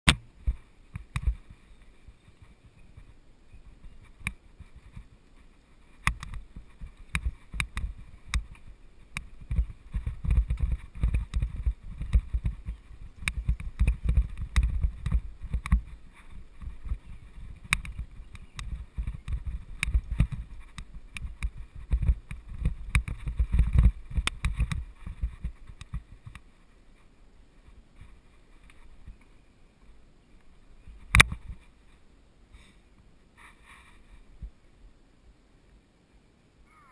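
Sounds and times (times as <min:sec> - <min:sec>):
wind on the microphone: 0:00.1 - 0:29.4
low rumble of trail bumps: 0:00.1 - 0:34.7
bike clicks and rattles: 0:05.8 - 0:26.5.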